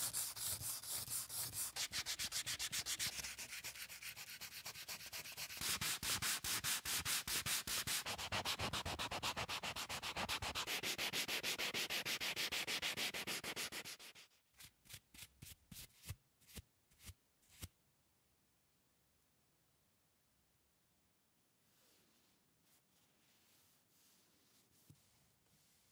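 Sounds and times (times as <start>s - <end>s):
hand sanding strokes: 0.0s - 14.3s, 21.8s - 25.9s.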